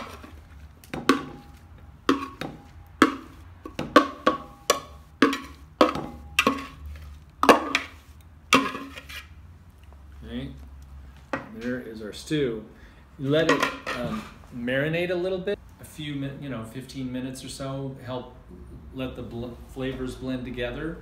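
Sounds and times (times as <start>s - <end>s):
utensil knocking on plastic bowl: 1.0s - 1.5s, 2.1s - 6.8s.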